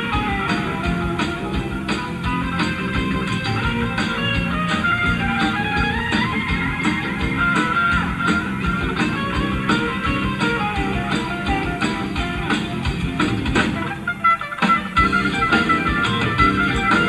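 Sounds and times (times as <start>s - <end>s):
electric guitar: 0.0s - 17.0s
rock band music: 0.0s - 17.0s
steady drum beat: 0.0s - 17.0s.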